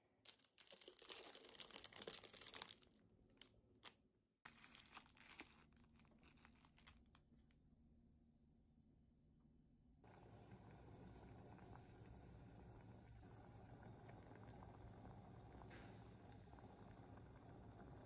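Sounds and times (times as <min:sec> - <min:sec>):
packaging crinkling and tearing: 0:00.3 - 0:02.9, 0:04.5 - 0:07.3.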